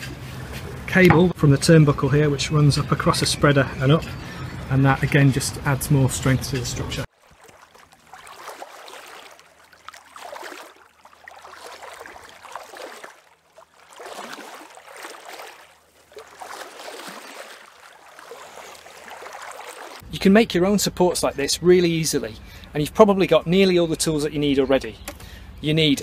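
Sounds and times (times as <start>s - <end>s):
water lapping and sloshing: 3.0s - 20.1s.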